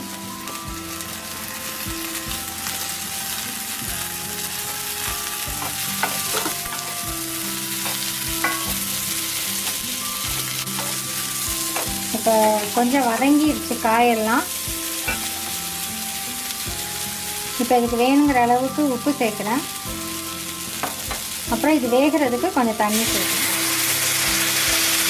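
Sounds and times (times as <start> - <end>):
vegetables sizzling in a pan: 0.0 - 25.0
spatula scraping and knocking pan: 4.6 - 15.8, 20.8 - 21.4
steady held tones: 5.4 - 22.7.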